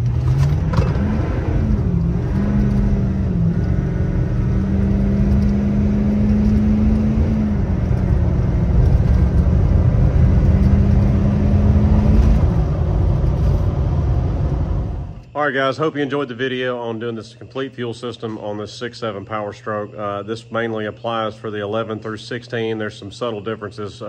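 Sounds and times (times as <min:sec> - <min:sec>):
diesel truck engine accelerating: 0:00.0 - 0:15.3
transmission shifting gears: 0:00.0 - 0:15.4.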